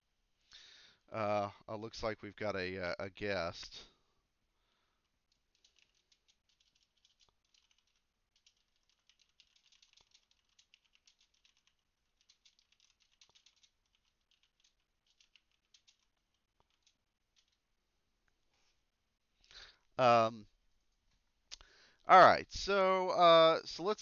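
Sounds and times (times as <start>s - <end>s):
faint typing on computer keyboard: 4.8s - 18.4s.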